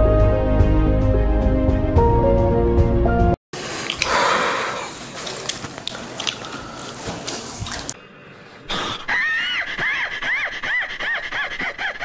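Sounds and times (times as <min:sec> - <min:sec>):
chewing and crunching crispy food: 0:03.6 - 0:08.0.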